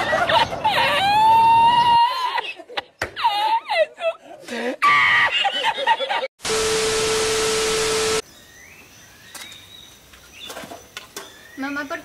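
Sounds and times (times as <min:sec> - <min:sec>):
faint outdoor ambience: 0:00.0 - 0:12.0
man cackling laughter: 0:02.2 - 0:06.3
loud static hiss: 0:06.4 - 0:08.2
steady beep tone: 0:06.5 - 0:08.2.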